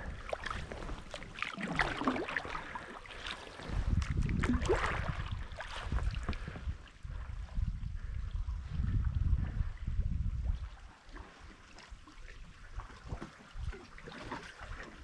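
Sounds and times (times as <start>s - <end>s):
water splashing and dripping: 0.0s - 6.7s, 10.5s - 15.0s
wind rumble on microphone: 0.0s - 15.0s.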